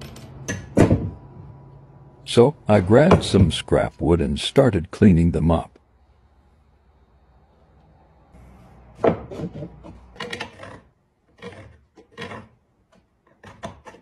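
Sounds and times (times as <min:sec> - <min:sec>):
wood knocking on wood: 0:09.0 - 0:10.0
wood scraping and rubbing: 0:09.1 - 0:14.0.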